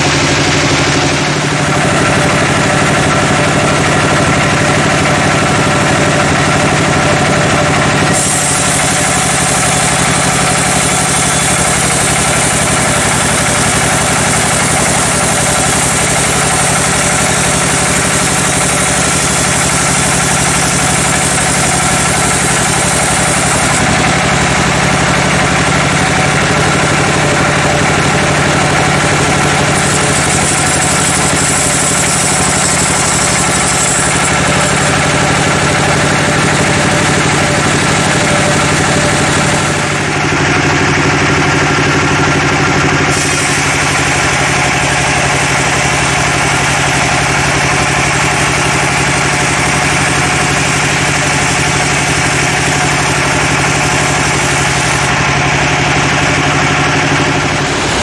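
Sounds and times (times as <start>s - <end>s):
sawmill machine hum: 0.0s - 58.0s
bandsaw blade cutting log hiss: 8.0s - 23.9s, 28.9s - 36.9s, 43.1s - 55.2s.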